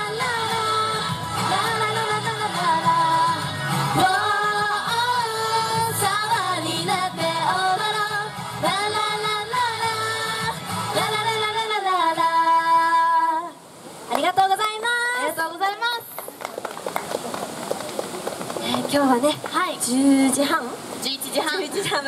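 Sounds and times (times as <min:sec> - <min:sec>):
backing track music: 0:00.0 - 0:11.5
women singing pop song: 0:00.0 - 0:13.6.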